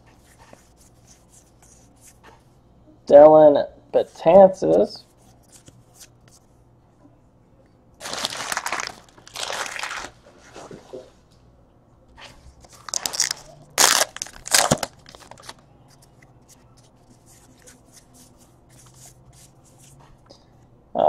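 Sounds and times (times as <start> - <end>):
wrapper tearing and crinkling: 8.0 - 10.2, 12.7 - 15.6.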